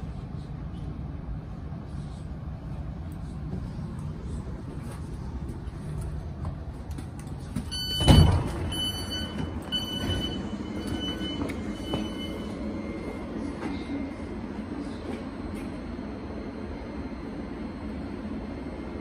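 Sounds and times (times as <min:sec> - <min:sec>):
train low hum: 0:00.0 - 0:19.0
electronic door beeps: 0:07.7 - 0:12.6.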